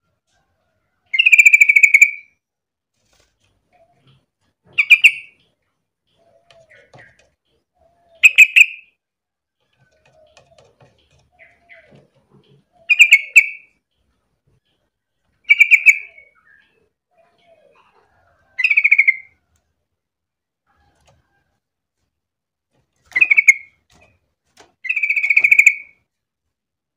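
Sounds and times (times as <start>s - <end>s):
fainter lower bird calls: 1.1s - 2.4s, 3.2s - 19.5s, 23.0s - 24.2s, 24.8s - 26.1s
bird calling bubbling phrases: 12.6s - 13.6s.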